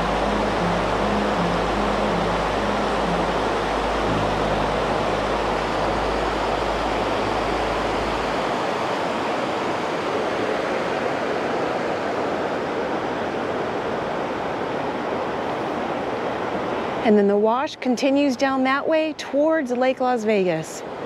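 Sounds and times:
faint background music: 0.0s - 8.6s
water rushing over rocks: 0.0s - 17.0s.

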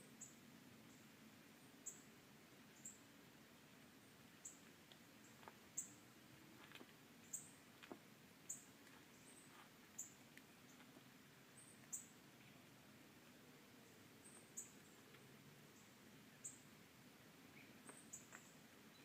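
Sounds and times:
small bird chirping: 0.2s - 1.0s, 1.8s - 2.1s, 2.7s - 3.0s, 4.4s - 12.6s, 13.8s - 16.7s, 17.4s - 19.0s.

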